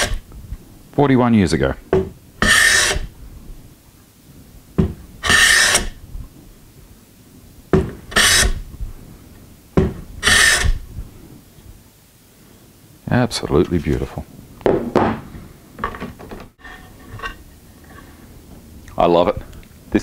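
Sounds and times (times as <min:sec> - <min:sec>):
hand plane shaving wood: 0:02.4 - 0:03.1, 0:05.2 - 0:05.9, 0:08.1 - 0:08.6, 0:10.2 - 0:10.8.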